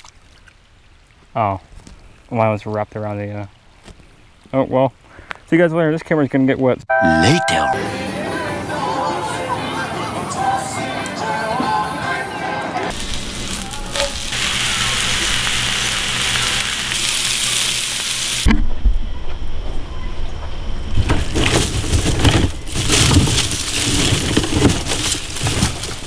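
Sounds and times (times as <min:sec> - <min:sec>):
vegetables sizzling in a frying pan: 0:12.9 - 0:18.5
rustling noises: 0:20.9 - 0:26.0.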